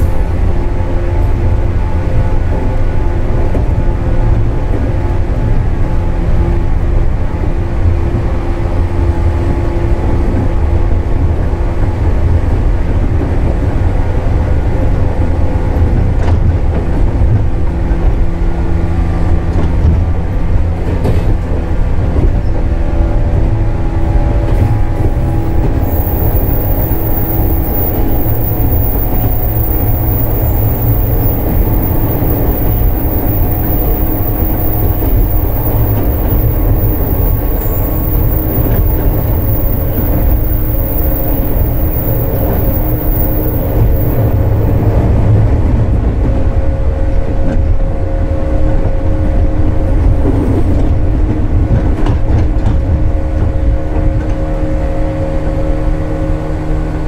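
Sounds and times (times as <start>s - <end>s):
wheels rumbling on rail: 0.0s - 57.0s
train traction motor hum: 23.8s - 45.9s
high-pitched whine: 24.3s - 45.0s.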